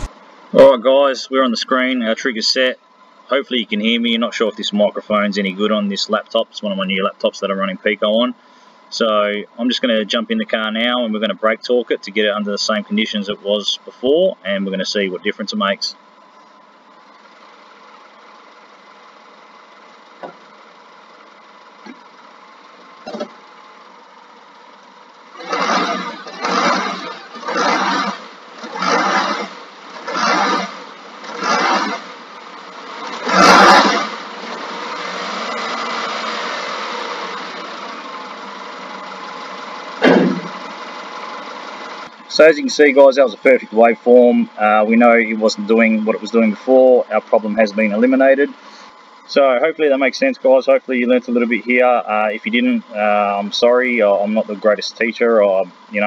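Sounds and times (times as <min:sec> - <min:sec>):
car engine idling: 0:00.0 - 0:56.0
loud thump: 0:40.0 - 0:40.6.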